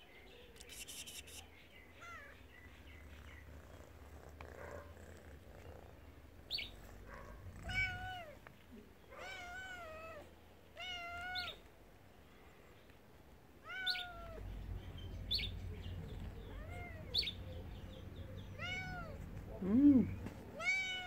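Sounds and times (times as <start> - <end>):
cat meowing: 2.0 - 2.4, 7.6 - 8.4, 9.1 - 11.7, 13.6 - 14.4, 16.4 - 17.3, 18.5 - 19.2, 20.6 - 21.0
cat chirps: 13.6 - 14.4, 18.5 - 19.2.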